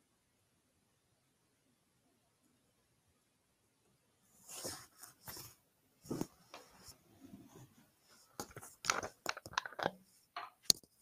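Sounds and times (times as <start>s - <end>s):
rustling and crackling with clicks: 4.5s - 11.0s.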